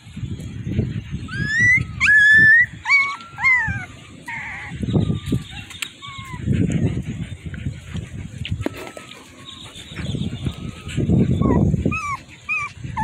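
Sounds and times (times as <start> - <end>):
dog whining: 1.3 - 7.1, 8.5 - 13.0.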